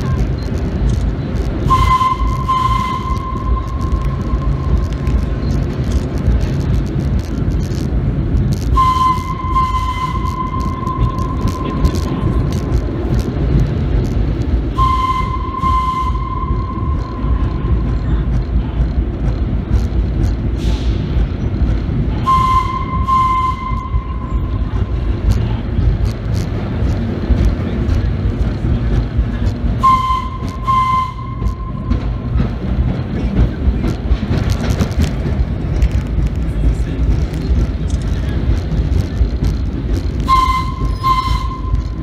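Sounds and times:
train rumble and wheel clatter: 0:00.0 - 0:42.0
subway train air whistle: 0:01.6 - 0:04.6, 0:08.7 - 0:12.1, 0:14.7 - 0:17.4, 0:22.2 - 0:24.5, 0:29.8 - 0:32.0, 0:40.2 - 0:42.0.

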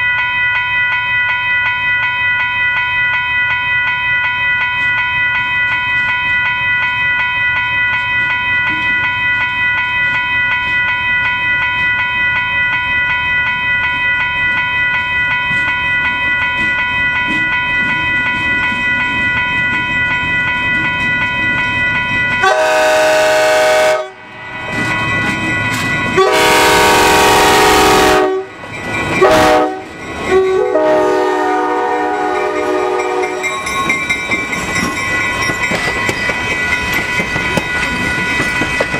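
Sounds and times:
diesel locomotive whine: 0:00.0 - 0:38.9
train air horn blasts: 0:22.4 - 0:24.2, 0:26.2 - 0:28.5, 0:29.2 - 0:33.4.

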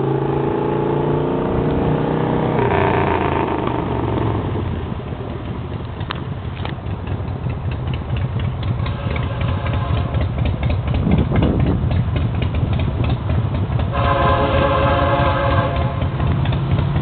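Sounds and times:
low rumble: 0:00.0 - 0:17.0
locomotive horn blowing: 0:08.8 - 0:10.4, 0:13.9 - 0:16.3.

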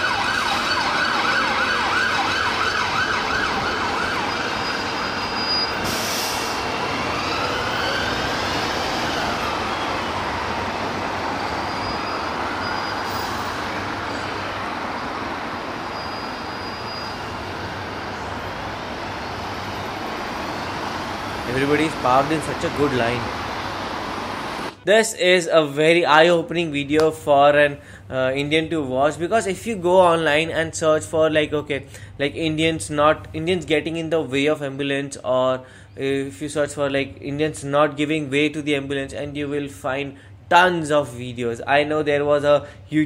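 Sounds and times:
emergency vehicle siren wailing: 0:00.0 - 0:24.8
street traffic: 0:00.0 - 0:24.9, 0:26.8 - 0:34.1, 0:35.2 - 0:43.0.

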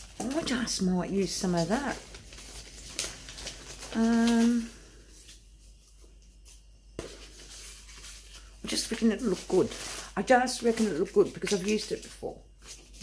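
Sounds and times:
woman humming: 0:04.0 - 0:04.8.

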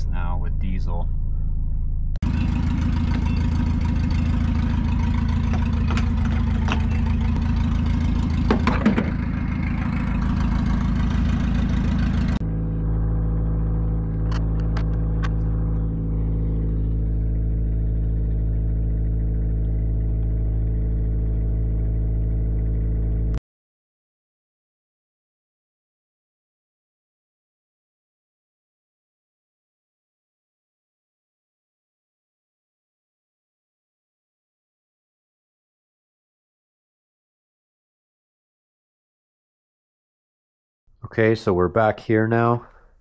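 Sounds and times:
fuel pump low hum: 0:00.0 - 0:23.4
steady low drone: 0:00.0 - 0:23.4.

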